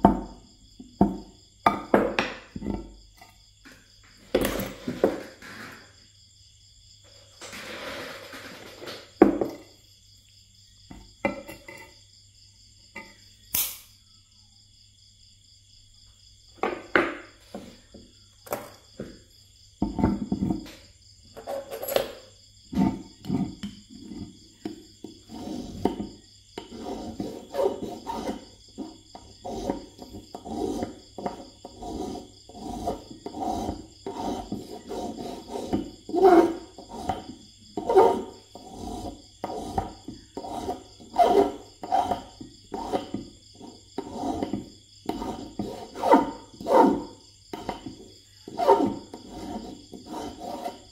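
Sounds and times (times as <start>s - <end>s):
short scrape on concrete: 4.1s - 6.1s, 7.2s - 9.3s, 48.5s - 50.9s
sharp metallic clack: 13.5s - 14.0s
metal file rasping on wire: 25.2s - 50.9s.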